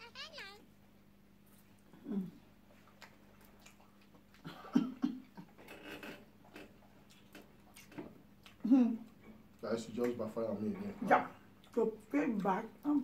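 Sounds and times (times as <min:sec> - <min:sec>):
people chewing food: 0:01.4 - 0:13.0
wet mouth clicks and smacks: 0:07.1 - 0:09.2.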